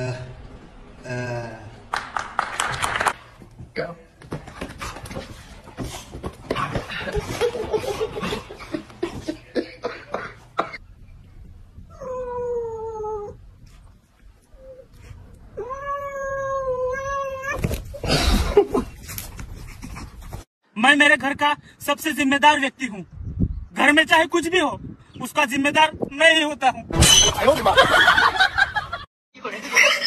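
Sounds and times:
cat meowing and yowling: 15.6s - 17.7s.

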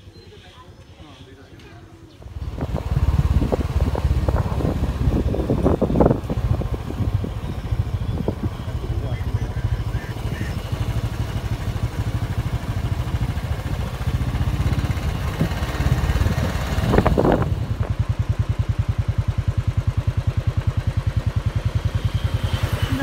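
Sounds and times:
motorbike engine pulsing: 1.9s - 23.0s
wind rushing on microphone: 2.3s - 18.0s.

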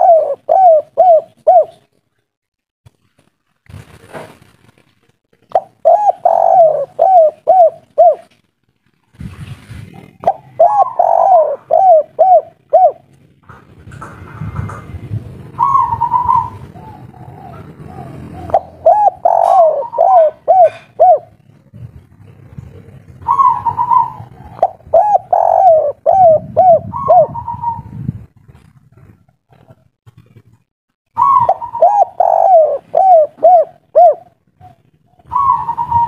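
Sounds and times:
dove cooing: 0.0s - 1.9s, 5.5s - 8.3s, 9.9s - 13.1s, 15.5s - 28.0s, 31.2s - 36.0s.

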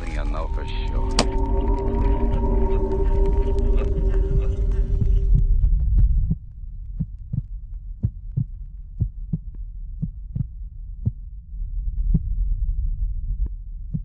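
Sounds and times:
low droning rumble: 0.0s - 14.0s.

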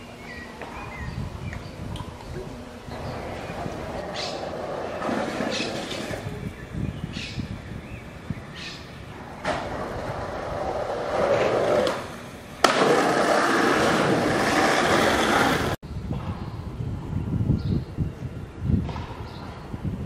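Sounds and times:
skateboard wheels rolling: 2.9s - 6.4s, 9.2s - 15.8s
skateboard clack: 3.6s - 6.4s, 9.4s - 16.3s.

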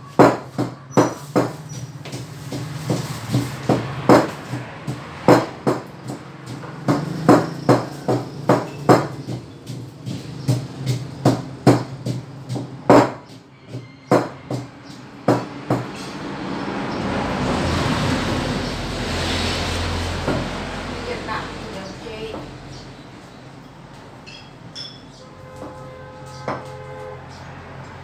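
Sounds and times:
wooden pestle pounding in mortar: 0.1s - 15.9s.

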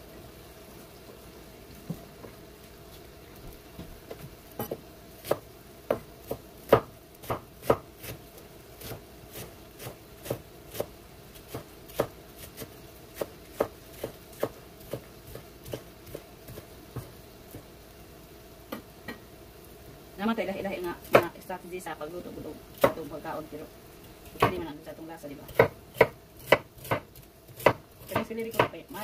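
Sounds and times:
faint steady hum: 0.0s - 29.0s
knife chopping on cutting board: 4.1s - 8.2s, 11.5s - 17.6s, 25.5s - 28.8s.

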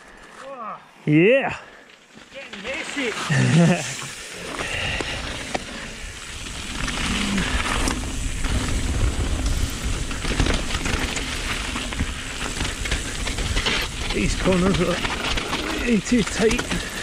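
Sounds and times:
bike rattling: 1.5s - 17.0s
tyres crunching over gravel: 1.7s - 17.0s
wind rumble on microphone: 4.8s - 16.0s.

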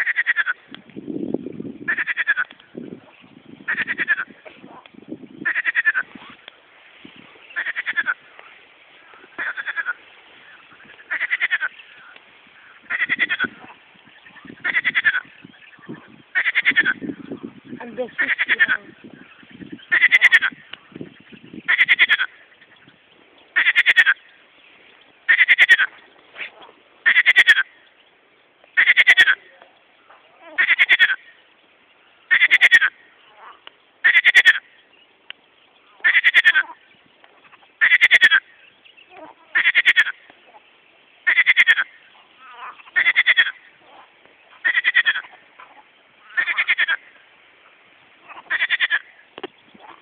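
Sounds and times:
fainter lower frog calls: 0.0s - 0.8s, 1.8s - 2.8s, 3.7s - 6.6s, 7.4s - 24.4s, 25.3s - 27.9s, 28.6s - 31.5s, 32.1s - 34.9s, 35.8s - 50.0s
frog rattling croaks: 12.9s - 13.7s, 14.5s - 15.3s, 15.9s - 17.5s, 18.1s - 18.9s, 28.8s - 29.4s, 41.3s - 44.0s.

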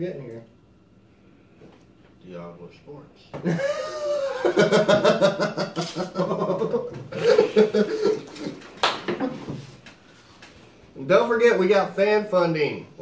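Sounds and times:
men laughing: 3.4s - 9.7s.

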